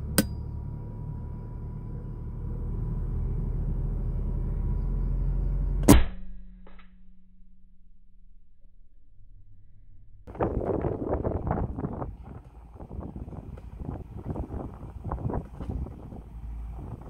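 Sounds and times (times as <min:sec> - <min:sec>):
steady low rumble: 0:00.0 - 0:17.0
air rifle shot: 0:05.8 - 0:06.4.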